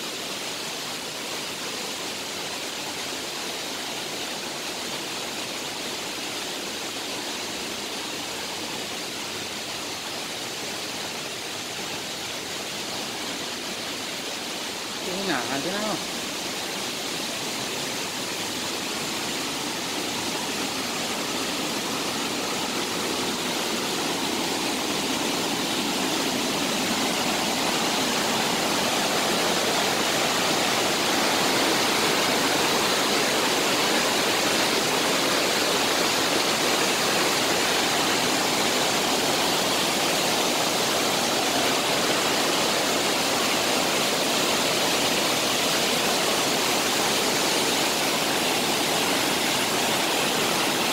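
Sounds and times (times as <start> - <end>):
waterfall rushing: 0.0 - 50.9.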